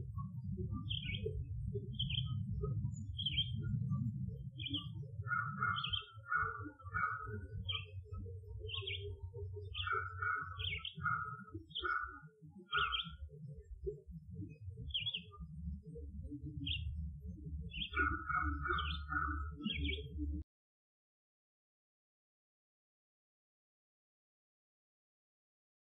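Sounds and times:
continuous low rumbling: 0.0s - 12.1s, 12.7s - 20.4s
small birds chirping: 0.0s - 20.4s.

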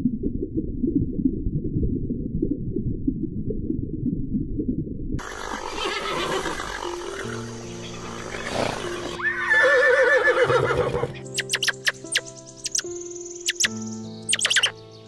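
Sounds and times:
background music: 5.2s - 15.0s
horse whinnying: 5.3s - 7.4s, 8.2s - 11.2s
squirrel squeaky chirps: 11.2s - 14.8s.

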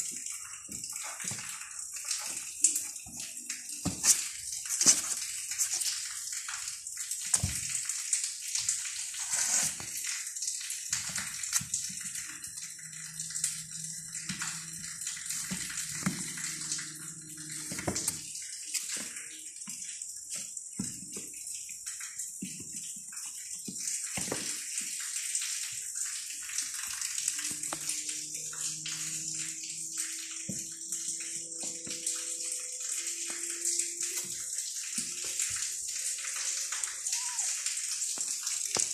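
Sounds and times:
kittens scratching cardboard: 9.2s - 9.9s.

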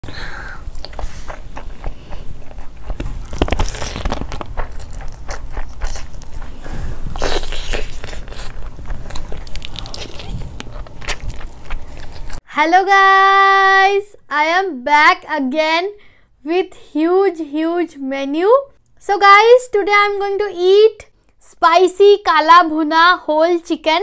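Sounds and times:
person chewing food: 0.5s - 12.4s
mouth clicks and smacks: 0.6s - 12.4s.

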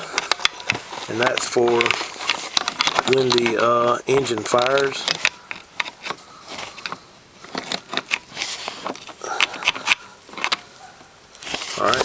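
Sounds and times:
handling clicks and taps: 0.0s - 8.2s, 8.8s - 10.6s
plastic sheeting crinkling: 10.8s - 12.0s.

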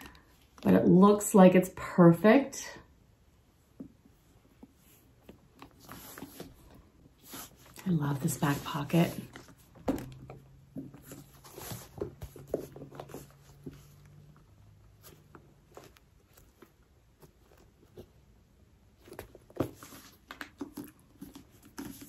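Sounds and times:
handbag rustling and tapping: 7.4s - 14.4s.

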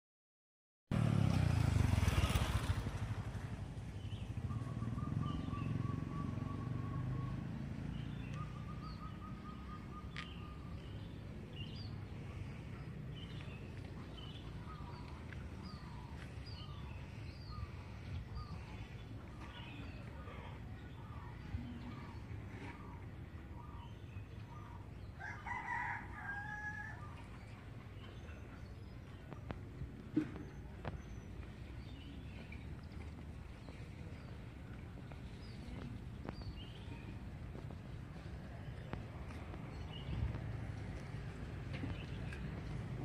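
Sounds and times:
motorcycle passing: 0.9s - 20.2s, 29.4s - 43.0s
low street hum: 0.9s - 43.0s.

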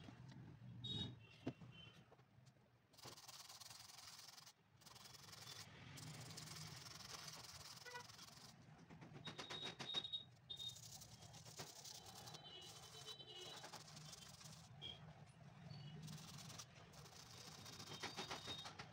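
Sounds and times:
brush scrubbing a shoe sole: 3.0s - 8.6s, 10.6s - 14.8s, 16.0s - 18.6s.

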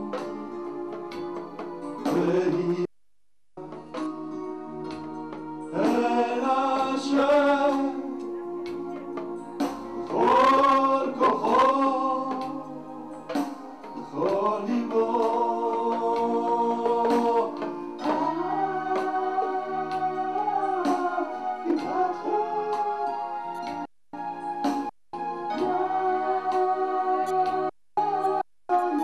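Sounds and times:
man singing into a microphone: 2.0s - 2.9s, 5.7s - 8.2s, 10.1s - 12.7s, 13.9s - 19.7s.

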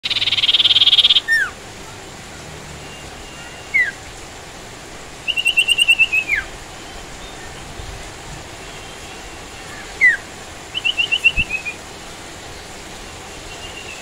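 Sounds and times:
songbird calling: 0.0s - 1.6s, 2.8s - 4.1s, 5.2s - 7.9s, 8.6s - 14.0s
steady background hiss: 0.0s - 14.0s.

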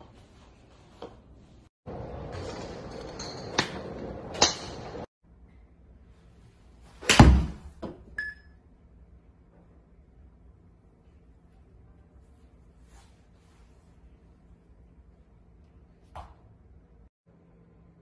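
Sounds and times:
ball hitting simulator screen: 1.9s - 5.1s, 7.0s - 8.4s
golf club striking ball: 3.6s - 5.0s.

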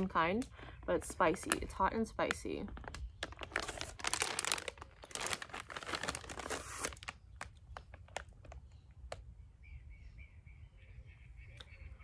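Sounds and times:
plastic snack bag crinkling: 0.8s - 9.2s.

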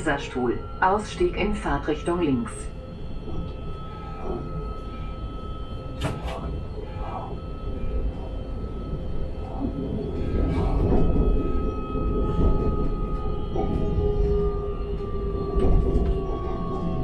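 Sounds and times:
electric train whine: 0.0s - 17.0s.

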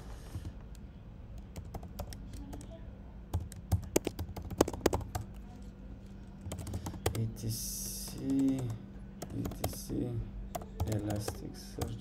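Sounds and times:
keyboard keystrokes: 3.3s - 5.4s, 6.4s - 7.2s, 8.0s - 12.0s.

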